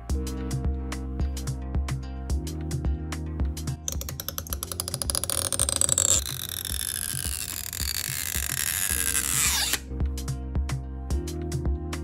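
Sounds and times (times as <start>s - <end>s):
background music with steady beat: 0.0s - 12.0s
adhesive strip crackling and squealing: 3.9s - 9.8s.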